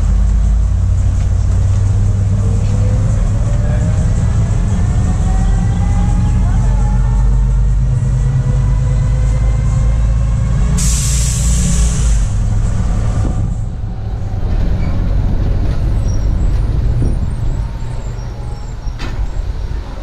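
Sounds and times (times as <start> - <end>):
bus engine and road noise: 0.0 - 20.0
air brake hissing: 10.8 - 12.4.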